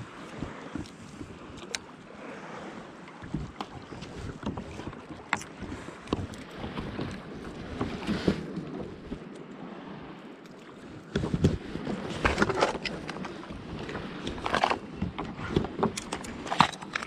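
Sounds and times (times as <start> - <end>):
wind rumbling on microphone: 0.0 - 10.2, 10.8 - 17.0
water lapping against hull: 0.0 - 17.0
small knocks and clicks: 14.2 - 17.0.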